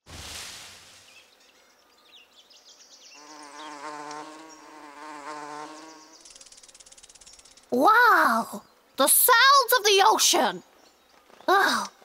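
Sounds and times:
cartoon bee wings buzzing: 0:02.4 - 0:07.8.

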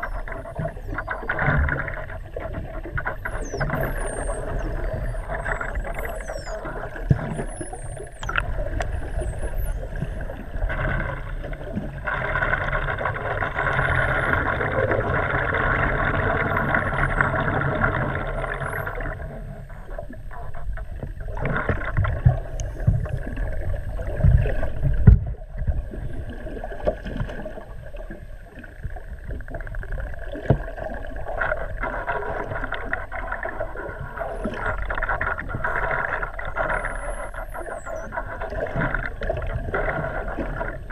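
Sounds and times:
dolphin whistles: 0:00.0 - 0:01.3, 0:03.1 - 0:08.4, 0:09.0 - 0:10.2, 0:18.3 - 0:19.1, 0:36.5 - 0:38.2
boat engine and propeller hum: 0:00.0 - 0:40.9.

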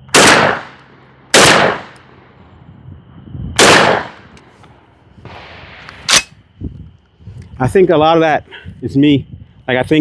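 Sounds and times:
shotgun blast: 0:00.1 - 0:02.0, 0:03.6 - 0:04.3.

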